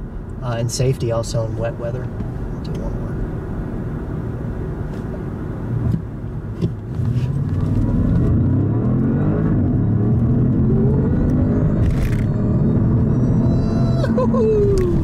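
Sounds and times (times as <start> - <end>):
car engine accelerating: 5.0 - 15.0.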